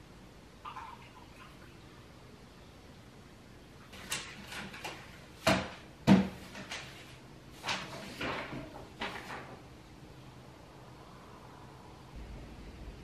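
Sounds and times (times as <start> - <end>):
objects knocking on desk: 4.8 - 6.7.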